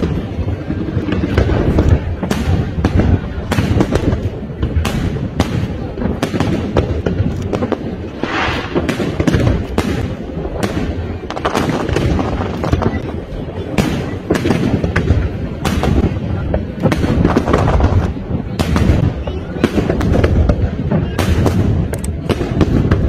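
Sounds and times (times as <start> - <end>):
firework hiss: 0.0 - 23.0
low rumble of booms: 0.0 - 23.0
firework shells bursting: 1.0 - 13.0.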